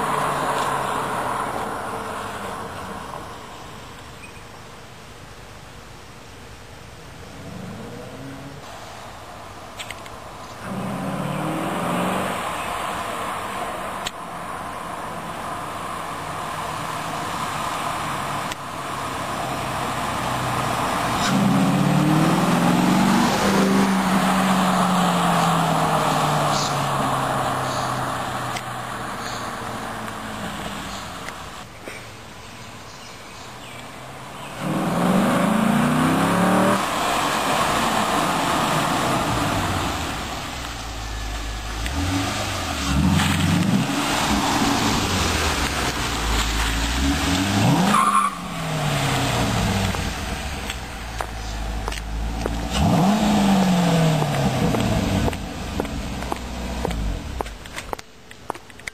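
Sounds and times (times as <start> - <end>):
car engine accelerating hard: 10.6 - 13.0, 16.4 - 31.6, 34.0 - 57.6.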